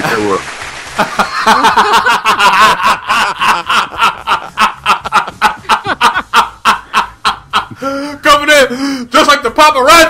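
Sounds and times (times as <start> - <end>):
people laughing hard: 1.0 - 8.1.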